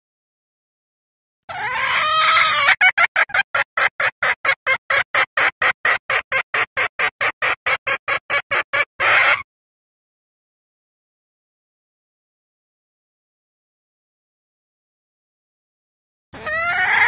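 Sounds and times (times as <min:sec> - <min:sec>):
hen clucking call: 0:01.5 - 0:09.5, 0:16.4 - 0:17.0.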